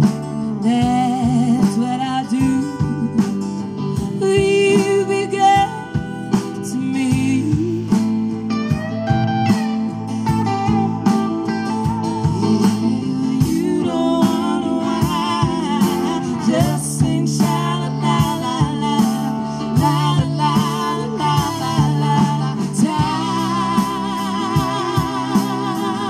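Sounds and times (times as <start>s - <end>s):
acoustic guitar: 0.0s - 26.0s
banjo: 0.0s - 26.0s
drum kit steady beat: 0.0s - 26.0s
man singing: 12.4s - 26.0s.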